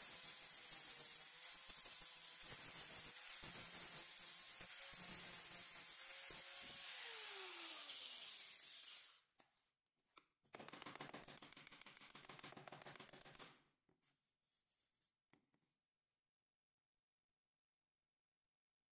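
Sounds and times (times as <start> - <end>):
electric sander on styrofoam: 0.0 - 9.2.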